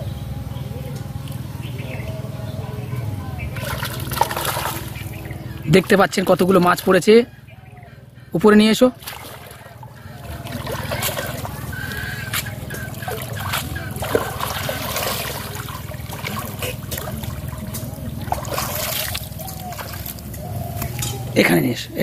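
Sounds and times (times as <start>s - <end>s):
pond water splashing: 3.4s - 7.3s, 8.4s - 21.0s.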